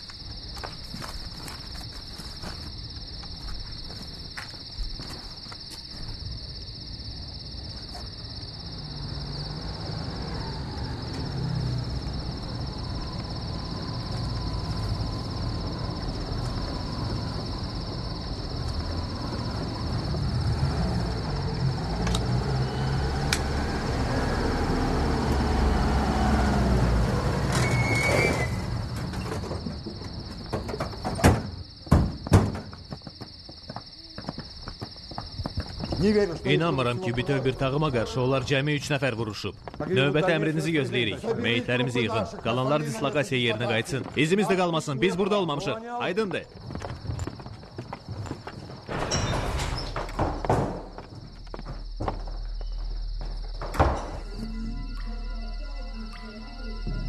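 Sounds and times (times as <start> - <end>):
crickets chirring: 0.0 - 57.0
jeep engine rumbling: 9.1 - 27.7
brief squeal: 27.5 - 28.8.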